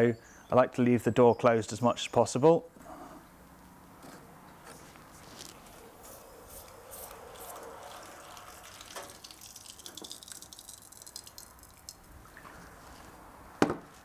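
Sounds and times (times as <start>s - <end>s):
oil bubbling and crackling: 6.5s - 13.2s.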